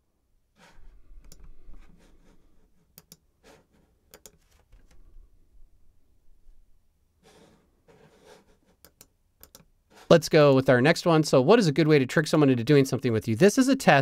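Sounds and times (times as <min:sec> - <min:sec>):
computer mouse clicks: 0:01.2 - 0:01.6, 0:02.9 - 0:03.2, 0:04.1 - 0:05.0, 0:08.8 - 0:09.7.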